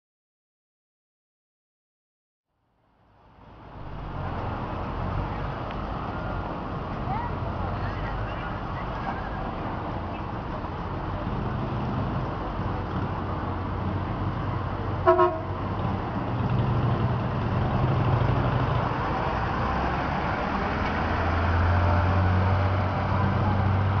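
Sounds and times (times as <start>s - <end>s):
bus engine running: 3.0s - 24.0s
bus horn toot: 15.0s - 15.6s.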